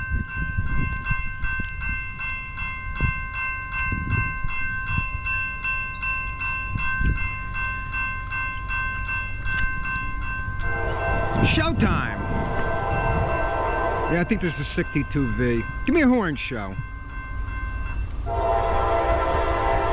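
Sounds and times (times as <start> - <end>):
railroad crossing bell ringing: 0.0 - 19.9.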